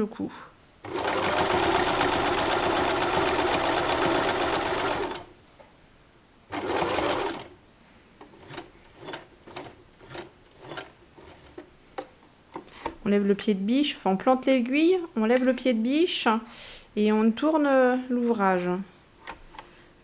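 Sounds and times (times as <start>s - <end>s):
sewing machine stitching: 0.8s - 5.3s, 6.5s - 7.6s, 8.3s - 11.6s.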